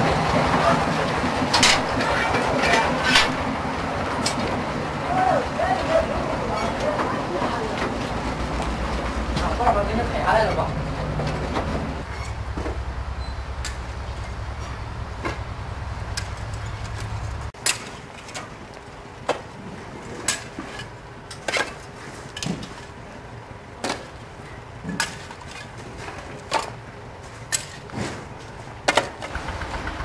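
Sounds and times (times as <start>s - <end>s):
low rumble: 1.1s - 17.6s.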